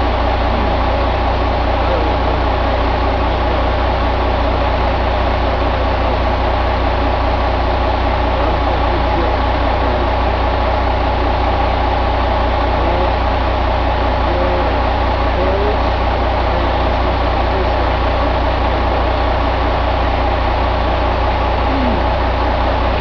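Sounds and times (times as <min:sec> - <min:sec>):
diesel engine running steadily: 0:00.0 - 0:23.0.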